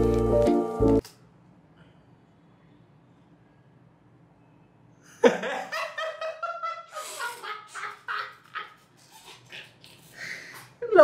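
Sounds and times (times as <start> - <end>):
man laughing: 5.2 - 10.0.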